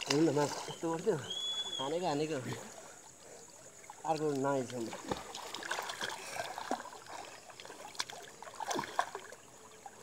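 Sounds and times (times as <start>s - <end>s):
small sharp splashes: 0.0s - 0.8s, 3.8s - 9.5s
pool water lapping at edge: 0.0s - 10.0s.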